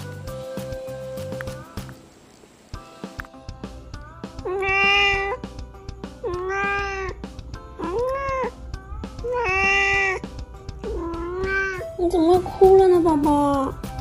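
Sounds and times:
cat meowing: 4.4 - 5.4, 6.2 - 7.2, 7.8 - 8.6, 9.2 - 12.0.

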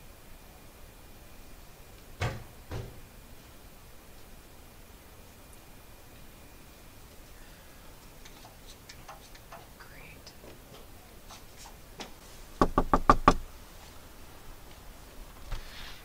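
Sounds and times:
knuckles knocking on door: 12.6 - 13.4.

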